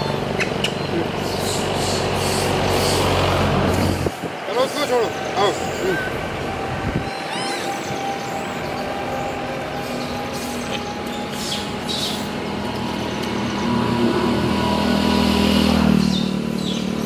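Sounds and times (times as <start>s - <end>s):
traffic running: 0.0s - 17.0s
vehicle engine hum: 0.0s - 17.0s.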